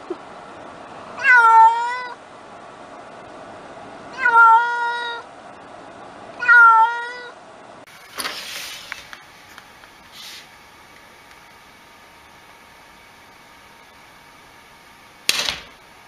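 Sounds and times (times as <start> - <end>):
cat meowing: 1.2 - 2.2, 4.1 - 5.2, 6.4 - 7.4.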